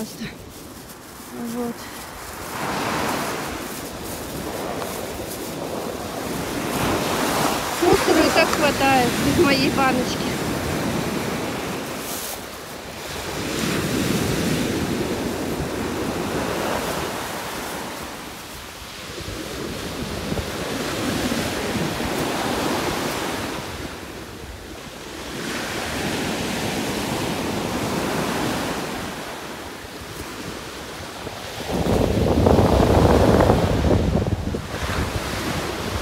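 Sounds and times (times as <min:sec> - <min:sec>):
surf breaking on beach: 0:00.0 - 0:24.4
wind on microphone: 0:00.0 - 0:36.0.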